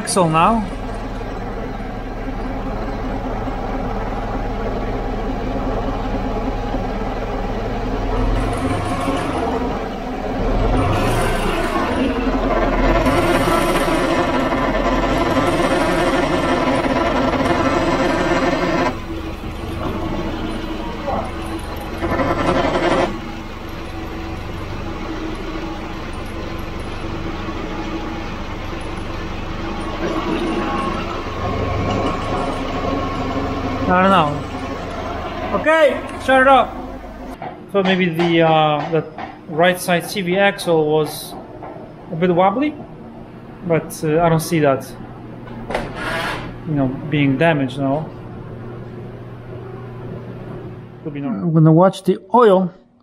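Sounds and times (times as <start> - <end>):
car drivetrain droning: 0.0 - 37.6.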